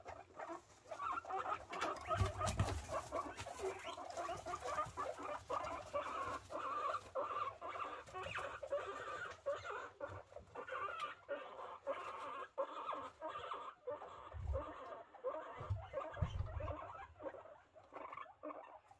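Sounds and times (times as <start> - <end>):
guinea pigs squeaking: 0.0 - 18.9.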